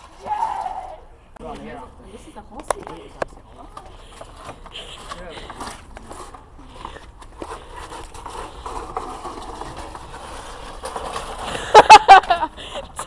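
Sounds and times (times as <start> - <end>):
loud high cries: 0.2 - 1.2
toy wheels rumbling over bricks: 2.5 - 13.0.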